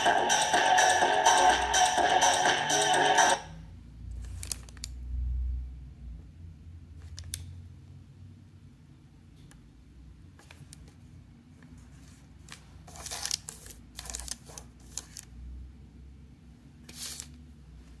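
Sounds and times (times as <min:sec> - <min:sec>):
paper rustling: 0:11.7 - 0:15.3, 0:16.9 - 0:17.4.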